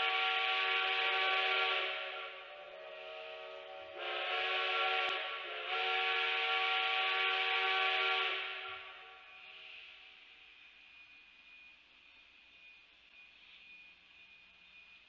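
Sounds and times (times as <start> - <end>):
steam whistle chord: 0.0 - 9.9.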